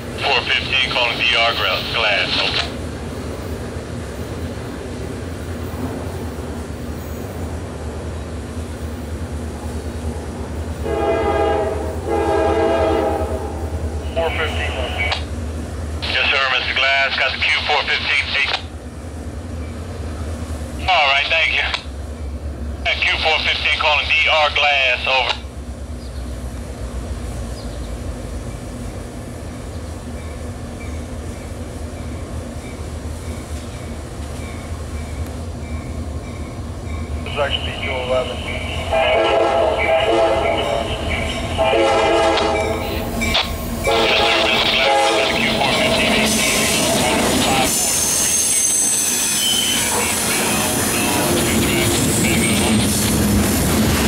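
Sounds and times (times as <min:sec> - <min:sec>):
diesel locomotive engine rumble: 0:00.0 - 0:54.0
locomotive air horn blasts: 0:10.8 - 0:13.7, 0:38.8 - 0:42.9, 0:43.8 - 0:45.4.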